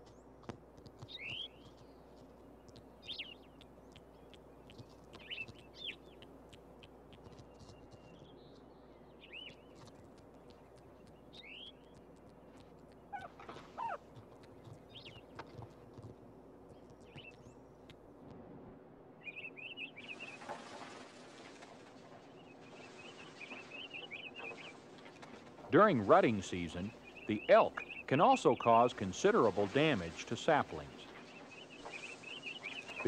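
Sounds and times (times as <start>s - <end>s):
teeth gnawing on wood: 0.4s - 3.0s, 3.6s - 5.8s, 9.7s - 18.0s.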